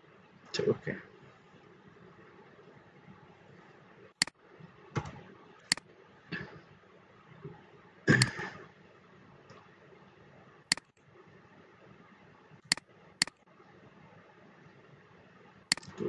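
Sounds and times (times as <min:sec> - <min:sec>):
faint steady hiss: 0:00.0 - 0:16.0
computer mouse clicks: 0:05.0 - 0:05.9, 0:10.7 - 0:11.0, 0:12.6 - 0:13.4, 0:15.7 - 0:16.0.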